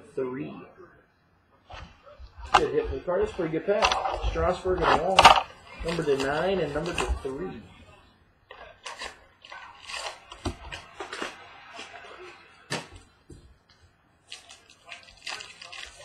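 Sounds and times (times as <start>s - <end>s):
cardboard and foil crinkling: 1.8s - 7.4s, 8.5s - 13.0s, 14.3s - 16.0s.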